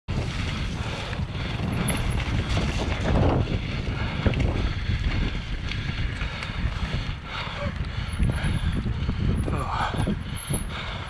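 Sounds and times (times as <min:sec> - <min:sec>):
bike knocks and rattles: 0:00.1 - 0:06.6
bike tyre rumble: 0:00.1 - 0:11.0
wind buffeting microphone: 0:00.1 - 0:11.0.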